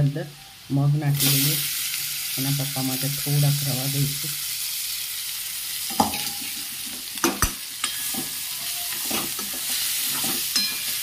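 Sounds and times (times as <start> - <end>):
oil sizzling in a pan: 0.0 - 11.0
spoon scraping a pan: 5.9 - 11.0.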